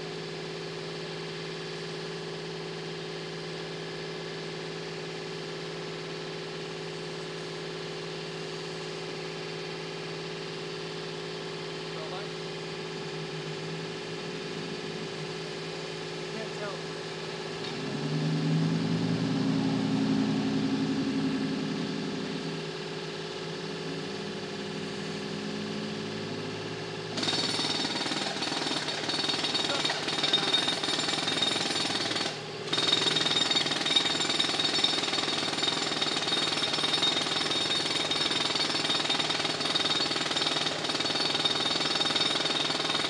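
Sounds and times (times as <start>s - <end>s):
engine running: 6.6s - 27.2s
jackhammer breaking concrete: 27.1s - 43.0s.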